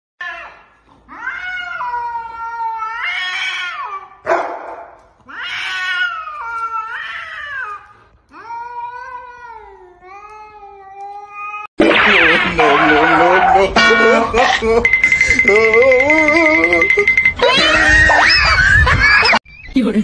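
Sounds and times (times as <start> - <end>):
cat yowling: 5.3 - 7.8.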